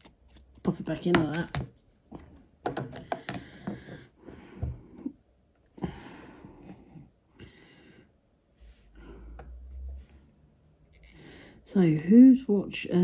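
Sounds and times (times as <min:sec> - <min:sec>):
person breathing and sniffing: 0:05.8 - 0:11.6.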